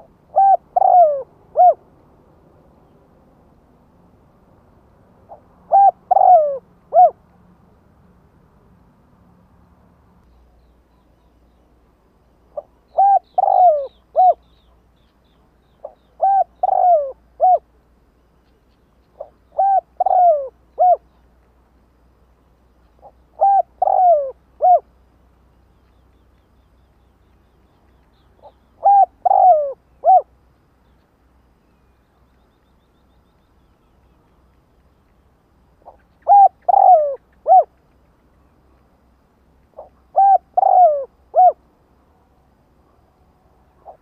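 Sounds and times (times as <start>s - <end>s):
dove cooing: 0.0s - 1.8s, 5.3s - 7.2s, 12.5s - 14.4s, 15.8s - 17.7s, 19.2s - 21.1s, 23.0s - 24.9s, 28.4s - 30.3s, 35.8s - 37.8s, 39.7s - 41.6s, 43.8s - 44.0s.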